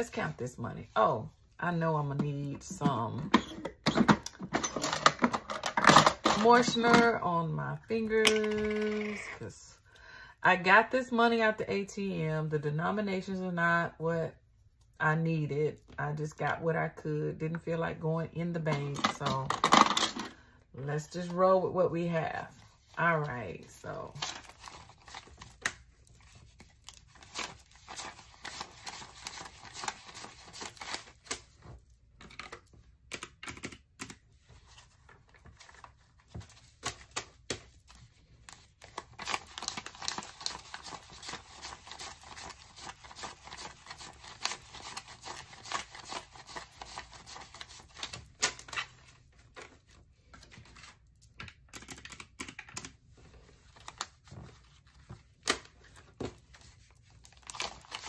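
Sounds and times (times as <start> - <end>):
paper bills rustling and snapping: 24.1 - 32.7, 34.5 - 51.0, 53.2 - 58.0.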